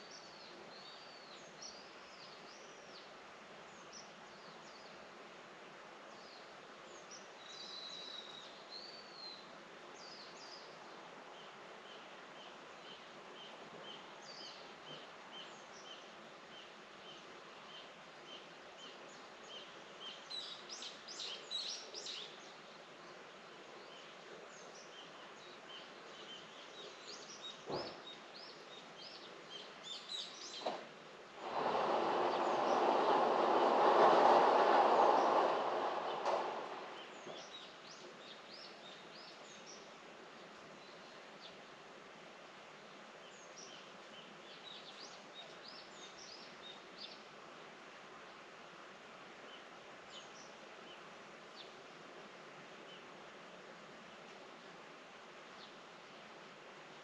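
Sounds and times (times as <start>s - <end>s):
steady outdoor hiss: 0.0s - 57.0s
small birds chirping: 31.4s - 41.6s.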